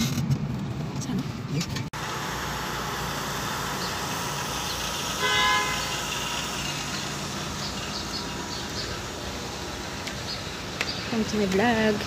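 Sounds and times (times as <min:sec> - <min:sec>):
street traffic noise: 0:00.0 - 0:12.0
car horn: 0:05.1 - 0:06.1.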